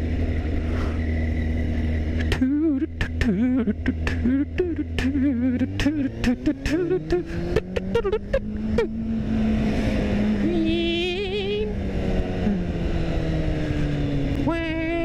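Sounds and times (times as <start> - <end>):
motorcycle engine running: 0.0 - 15.0.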